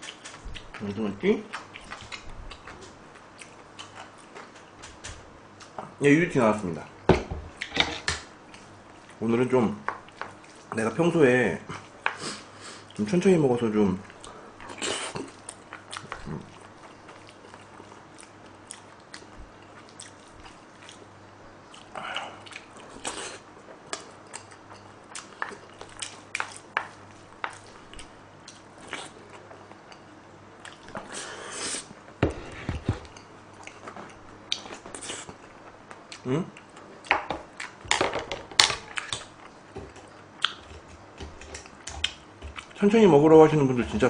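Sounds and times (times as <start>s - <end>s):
person chewing food: 0.0s - 5.9s, 9.8s - 10.7s, 14.0s - 37.8s, 38.8s - 42.8s.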